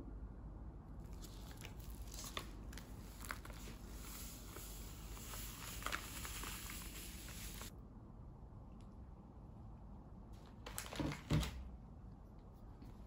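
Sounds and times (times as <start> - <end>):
foil packet crinkling: 1.1 - 7.7, 10.4 - 11.6.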